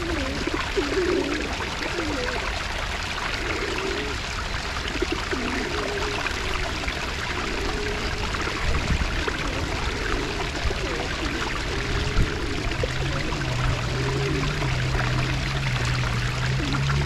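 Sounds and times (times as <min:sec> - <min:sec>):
running water: 0:00.0 - 0:17.0.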